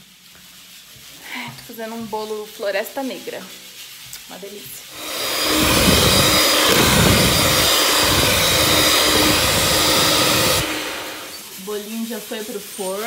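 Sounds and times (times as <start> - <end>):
electric mixer whirring: 5.0 - 11.6.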